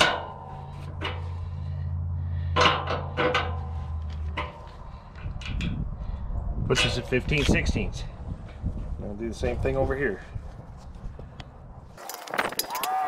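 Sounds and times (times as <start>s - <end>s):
steady low hum: 0.0s - 9.0s.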